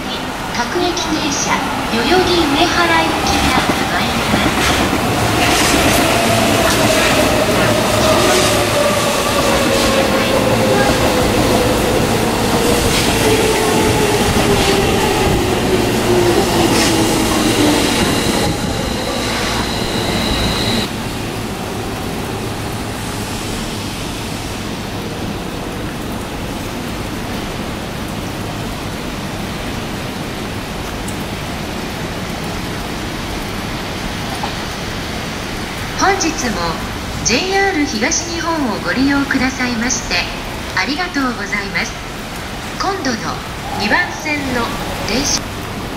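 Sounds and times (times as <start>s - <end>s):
steady rushing noise: 0.0s - 28.8s
electric train passing: 0.0s - 45.9s
high squeal: 16.2s - 20.9s
motor whine: 17.2s - 20.9s.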